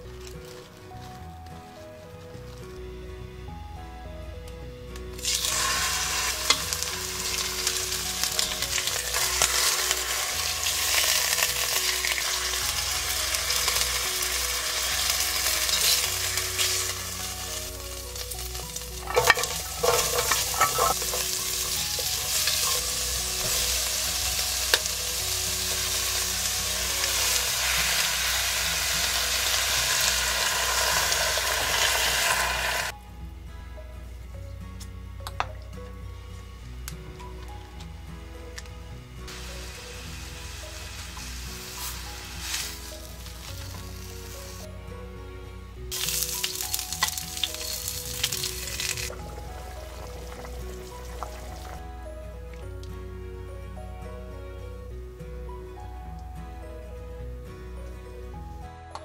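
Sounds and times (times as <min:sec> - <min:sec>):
meat sizzling in oil: 0:05.2 - 0:32.9, 0:39.3 - 0:44.7, 0:45.9 - 0:51.8
oil popping: 0:17.6 - 0:25.0, 0:45.9 - 0:51.8.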